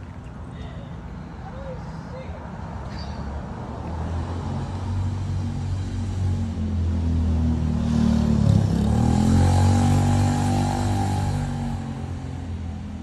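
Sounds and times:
vehicle engine accelerating: 7.2 - 12.3.

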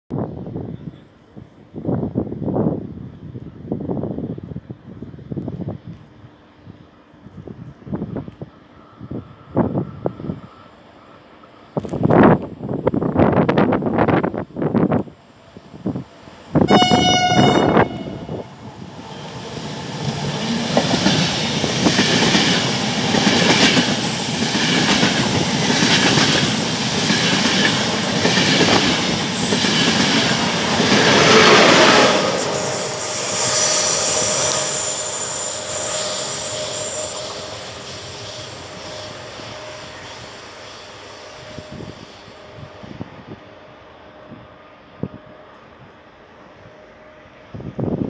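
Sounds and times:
train passing with wheel clatter: 0.3 - 48.0
train horn blast: 16.7 - 18.5
faint high whine: 32.2 - 48.0.

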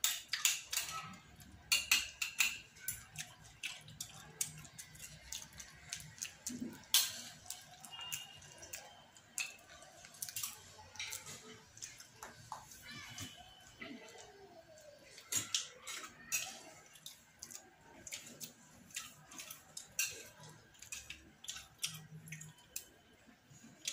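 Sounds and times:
soybean pods clicking and crackling: 2.8 - 14.4.

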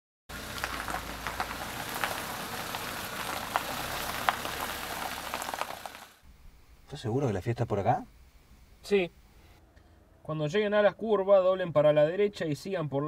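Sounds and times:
tyres crunching over gravel: 0.3 - 6.2
low engine hum: 0.3 - 6.8.

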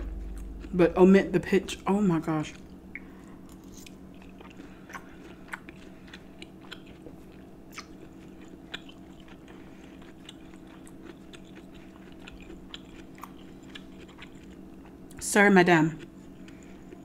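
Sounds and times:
steady low hum: 0.0 - 17.0
wet chewing mouth clicks: 3.0 - 15.0.

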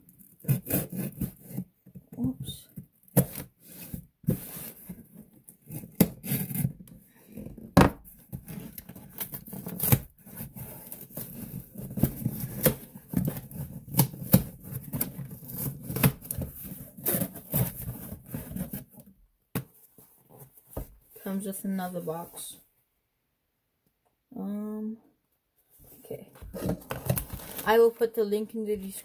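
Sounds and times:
scraping at packing tape and cardboard: 0.1 - 1.7, 3.0 - 7.0, 8.1 - 19.0.

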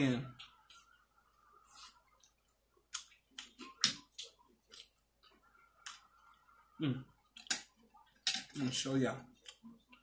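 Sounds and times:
chewing and mouth smacks: 1.6 - 6.5.

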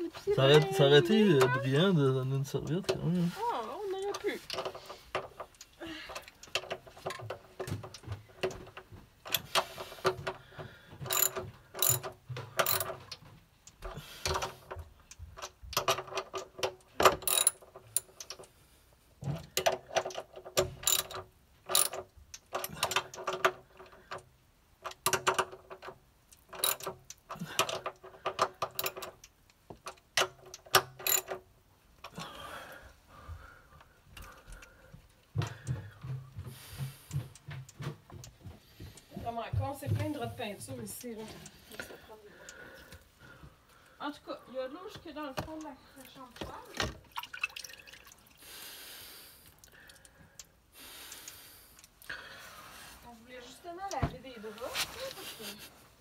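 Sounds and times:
socket wrench ratchet clicking: 11.1 - 13.0, 17.1 - 18.5, 19.6 - 23.5, 26.4 - 29.3, 29.9 - 31.4.

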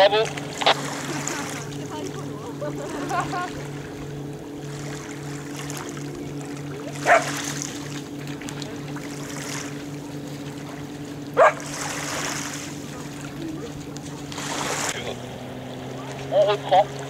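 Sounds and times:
motor idling: 0.0 - 17.0.

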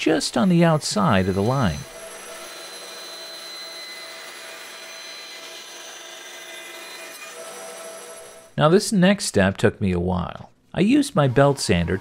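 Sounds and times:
bandsaw cutting wood: 0.0 - 8.5, 11.0 - 12.0.

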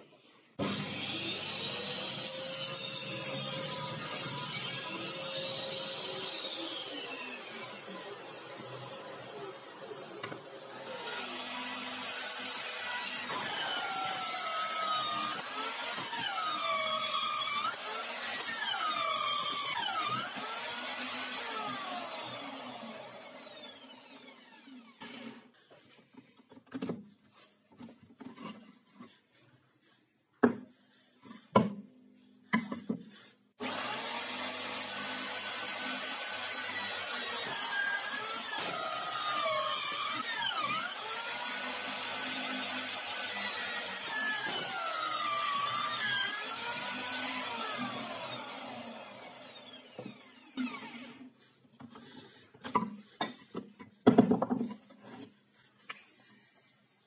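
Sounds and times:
drill press with hole saw cutting: 0.6 - 25.5, 33.6 - 51.3.

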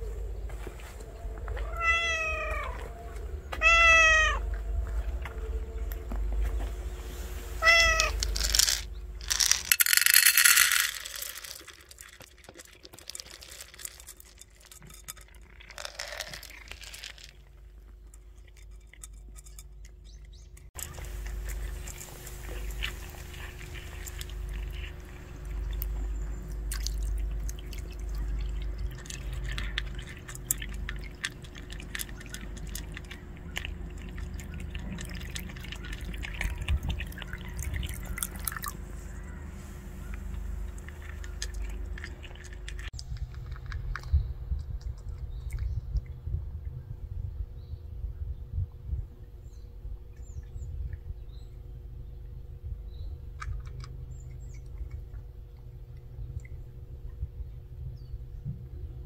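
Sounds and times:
low steady rumble: 0.0 - 59.0
cat meowing: 1.6 - 2.9, 3.6 - 4.5, 7.6 - 8.2
cat crunching kibble: 7.6 - 20.1, 20.8 - 45.6, 53.2 - 56.3
kibble poured into plastic bowl: 7.9 - 17.3.

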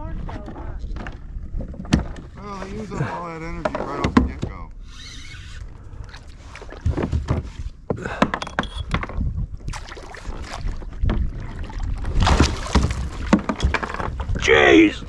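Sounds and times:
wind rumble on microphone: 8.6 - 15.0
fish splashing in water: 9.7 - 13.5.

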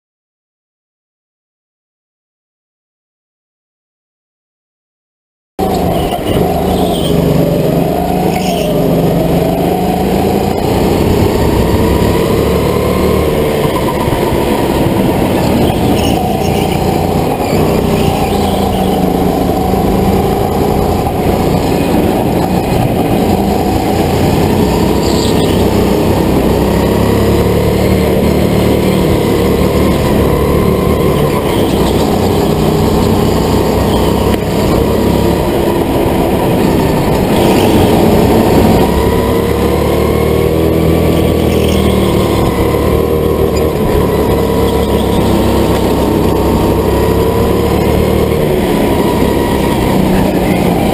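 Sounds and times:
go-kart motor running: 5.6 - 50.9.

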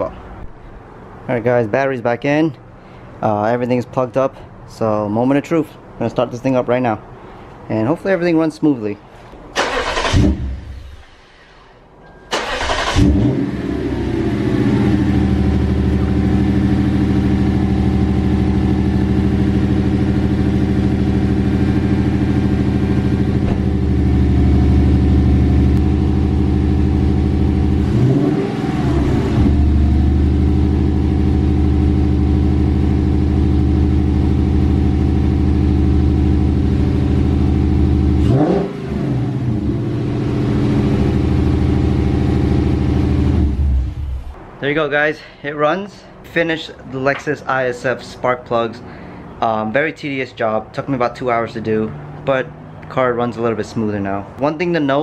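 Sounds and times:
car engine starting and idling: 9.5 - 11.7, 12.3 - 44.4.

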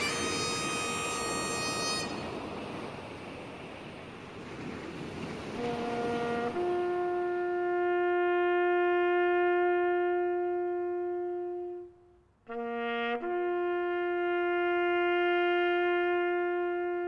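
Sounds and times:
bugle call: 0.0 - 2.4.

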